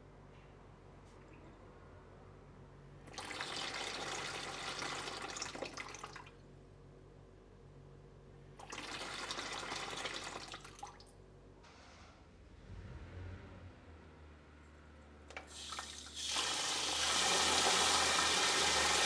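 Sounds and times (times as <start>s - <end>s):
water gushing from tap into bowl: 3.1s - 6.3s, 8.6s - 11.0s, 15.3s - 19.0s.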